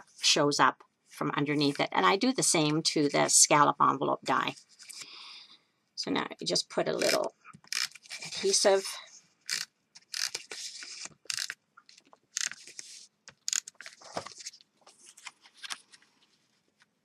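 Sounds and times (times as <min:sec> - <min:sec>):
tape runner scraping strokes: 0:07.0 - 0:08.9, 0:09.5 - 0:11.6, 0:12.4 - 0:14.0
paper rustling: 0:10.0 - 0:17.0.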